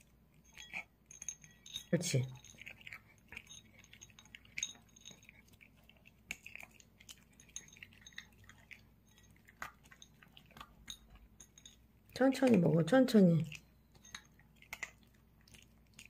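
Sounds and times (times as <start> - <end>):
dog chewing dry kibble: 0.0 - 16.0
kibble clicking against dish: 6.3 - 15.0.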